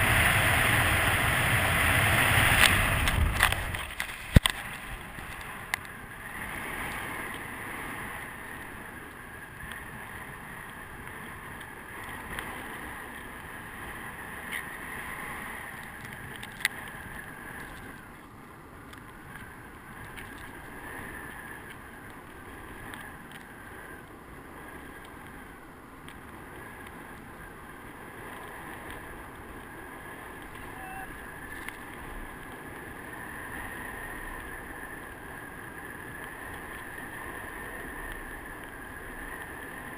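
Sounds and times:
rushing airflow over camera: 0.0 - 18.1
faint wavering whistle: 30.6 - 31.5.

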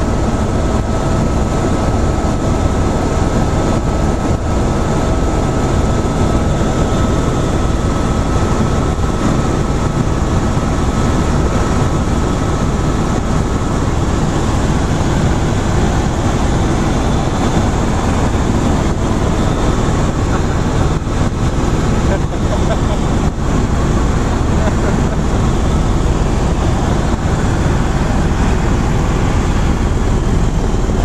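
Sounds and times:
faint steady whine: 0.0 - 31.0
helicopter rotor and engine din: 0.0 - 31.0.

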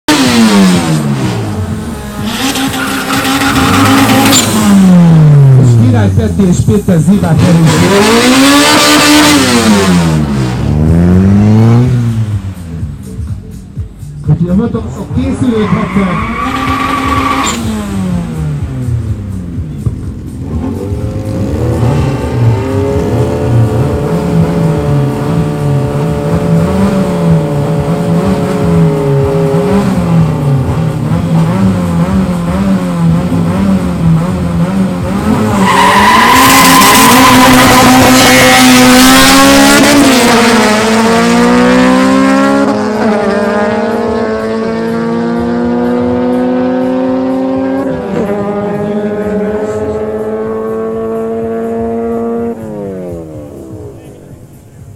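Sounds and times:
car engines revving: 0.0 - 54.9
tire squeal: 2.2 - 4.7, 15.2 - 18.1, 35.2 - 39.6.

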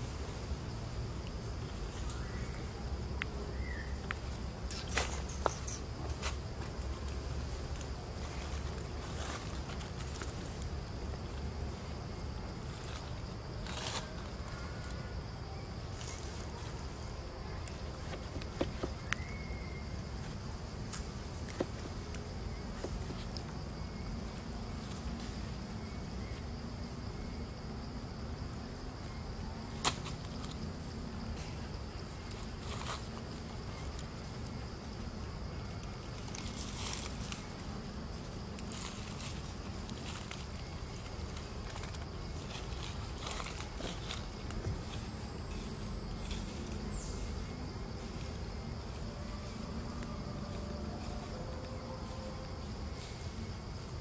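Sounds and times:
high insect drone: 0.0 - 54.0.

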